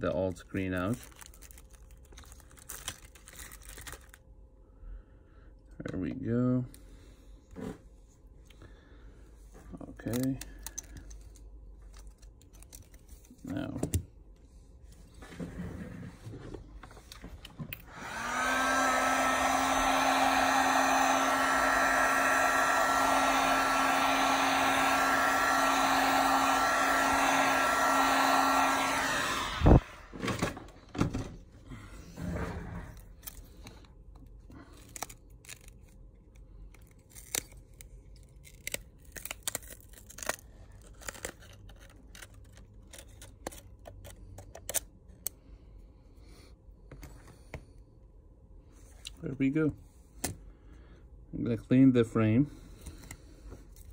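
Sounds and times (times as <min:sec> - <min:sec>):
heat gun blowing with whine: 0:17.8 - 0:30.6.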